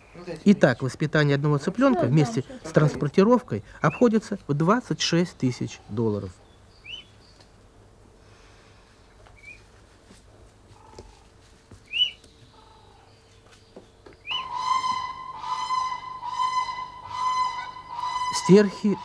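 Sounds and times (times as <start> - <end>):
crane chick peeping: 6.8 - 7.5, 11.9 - 13.1, 14.1 - 19.0.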